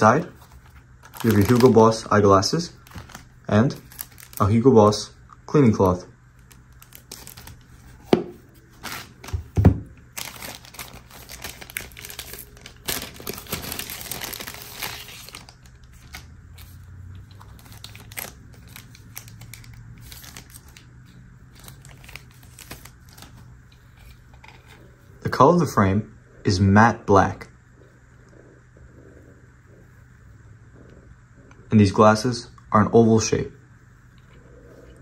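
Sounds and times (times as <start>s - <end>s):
plastic bag crinkling: 0.0s - 2.0s, 2.8s - 4.6s, 6.4s - 8.0s, 8.6s - 24.8s.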